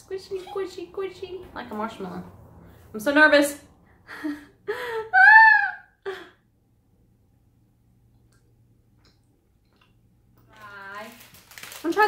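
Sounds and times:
woman breathing: 0:03.8 - 0:05.1.

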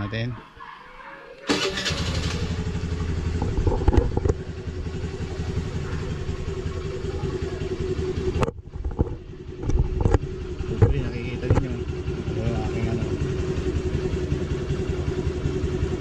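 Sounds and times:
scooter engine idling: 0:01.5 - 0:16.0.

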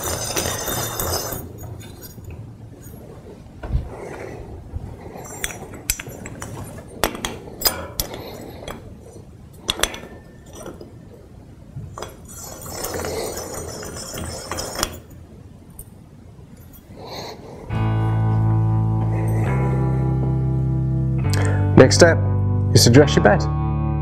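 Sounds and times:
metal scraping and rubbing: 0:00.0 - 0:11.2, 0:11.9 - 0:15.2.

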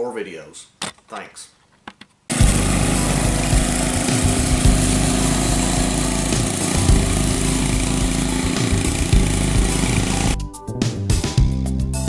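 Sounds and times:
go-kart engine running: 0:02.3 - 0:10.4.

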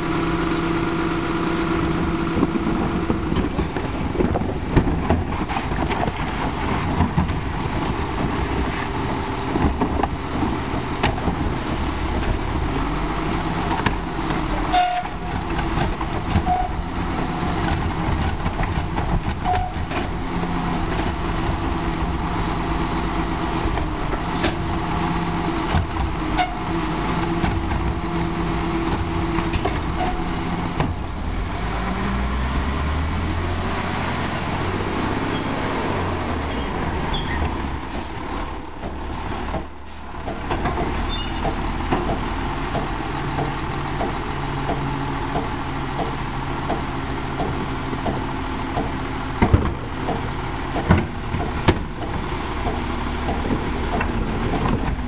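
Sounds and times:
garbage truck diesel engine: 0:00.0 - 0:55.0.

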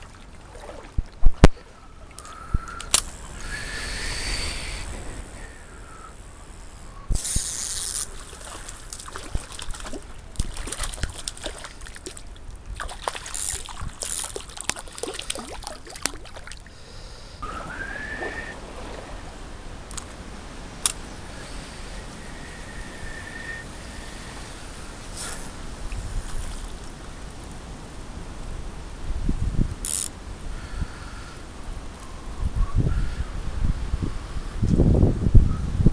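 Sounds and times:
short rising whistle: 0:02.6 - 0:06.2, 0:17.4 - 0:18.6, 0:22.2 - 0:23.7
stream running over stones: 0:07.2 - 0:16.8.

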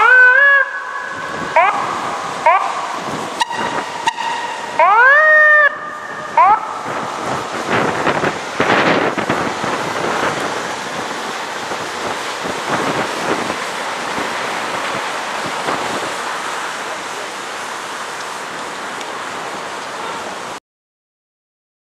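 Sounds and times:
wind buffeting microphone: 0:00.2 - 0:16.4.

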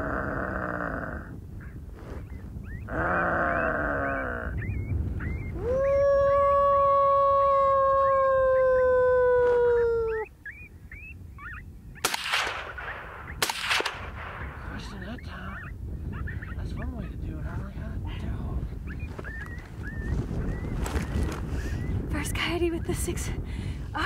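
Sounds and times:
coyote howl from predator call: 0:02.6 - 0:11.7
suppressed rifle shots: 0:12.0 - 0:14.7.

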